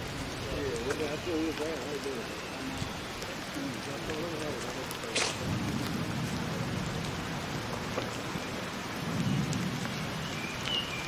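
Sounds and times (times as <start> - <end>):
steady rain: 0.0 - 11.0
low rumble of thunder: 5.4 - 11.0.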